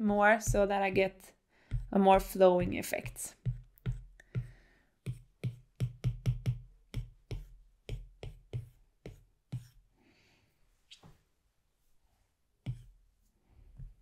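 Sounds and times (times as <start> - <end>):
sparse electronic beat: 0.4 - 1.1.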